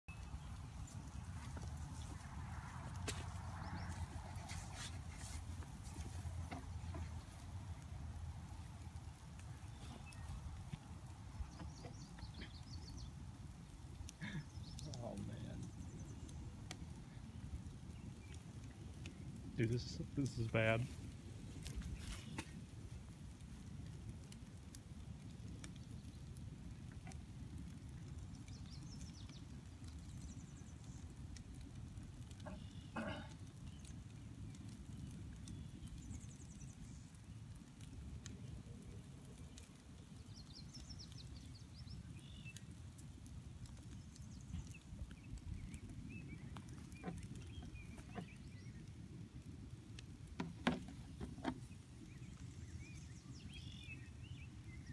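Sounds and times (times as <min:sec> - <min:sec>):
birds calling faintly: 0:00.1 - 0:54.9
fire pops and cracks: 0:00.1 - 0:54.9
flames rumbling: 0:00.1 - 0:54.9.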